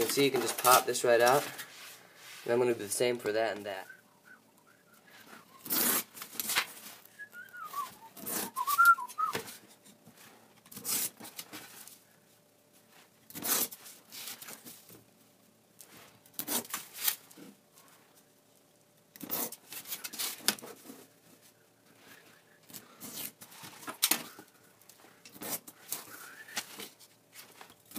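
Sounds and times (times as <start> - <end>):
person whistling: 3.8 - 5.7, 7.1 - 9.4, 26.1 - 26.7.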